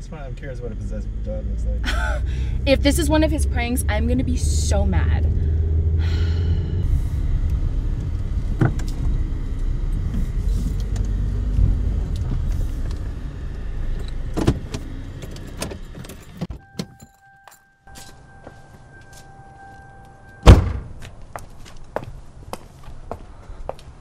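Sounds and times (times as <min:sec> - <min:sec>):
car engine and road rumble: 0:00.0 - 0:24.0
steady high tone: 0:16.6 - 0:20.5.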